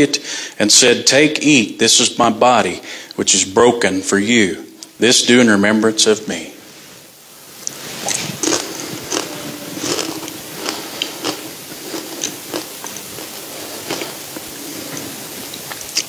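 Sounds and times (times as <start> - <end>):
people chewing crunchy bread: 7.6 - 16.0.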